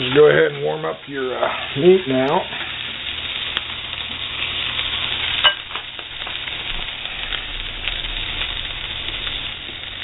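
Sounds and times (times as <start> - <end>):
food sizzling in frying pan: 0.0 - 10.0.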